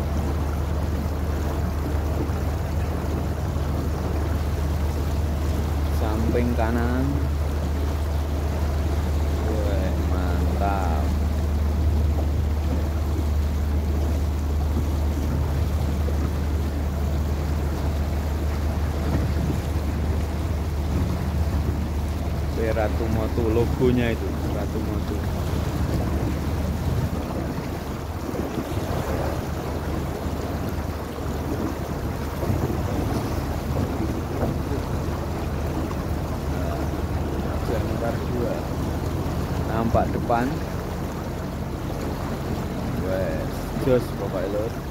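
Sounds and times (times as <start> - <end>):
boat engine droning: 0.0 - 44.9
water noise: 0.0 - 44.9
wind buffeting microphone: 0.0 - 44.9
wind noise: 25.2 - 34.7.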